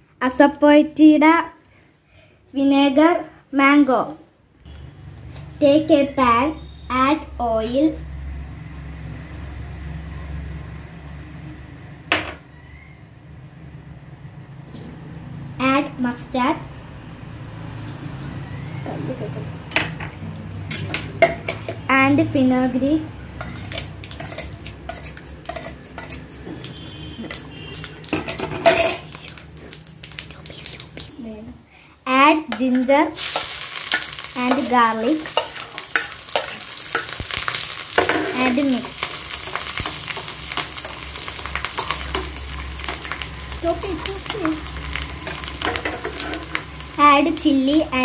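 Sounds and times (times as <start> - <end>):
metal spoon clinking on dishes: 20.7 - 21.8, 23.4 - 26.2, 28.1 - 29.1
spoon scraping metal pan: 23.4 - 29.1, 45.2 - 46.6
garlic sizzling in hot oil: 23.4 - 31.1, 32.4 - 48.0.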